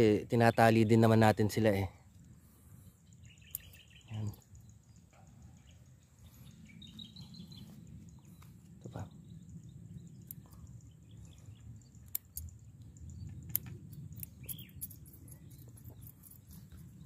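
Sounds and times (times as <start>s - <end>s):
bird chirps: 0.0s - 17.0s
steady low rumble: 0.0s - 17.0s
sharp clicks: 3.5s - 4.4s, 10.2s - 10.7s, 11.9s - 16.4s.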